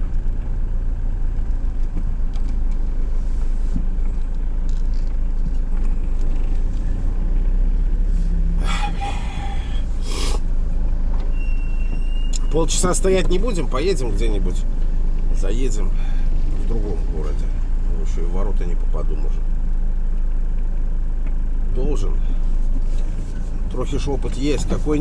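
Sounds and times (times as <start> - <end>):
truck engine and road rumble: 0.0 - 25.0
loud hissing: 8.6 - 10.5.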